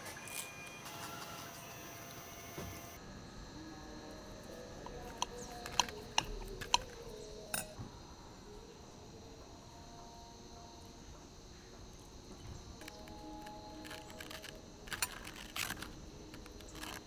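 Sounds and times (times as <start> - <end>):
cutlery clinking on a plate: 4.9 - 7.8.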